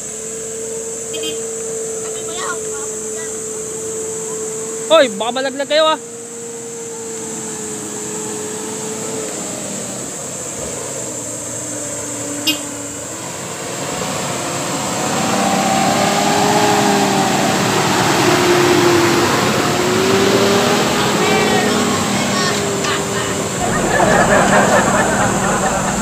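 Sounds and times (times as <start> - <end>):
car engine climbing trail: 0.0 - 26.0.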